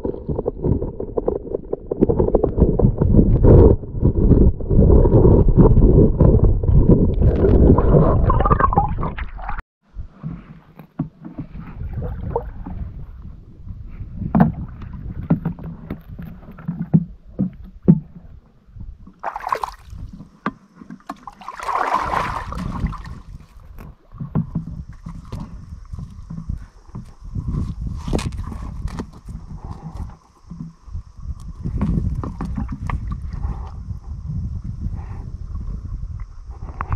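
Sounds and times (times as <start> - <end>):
underwater rumble and sloshing: 0.0 - 36.9
brief water splashes: 21.4 - 23.3.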